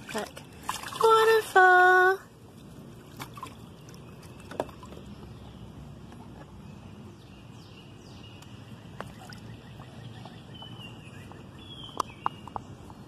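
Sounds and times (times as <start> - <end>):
water splashing in a pool: 0.0 - 5.4, 8.9 - 10.8
outdoor background noise: 0.0 - 13.0.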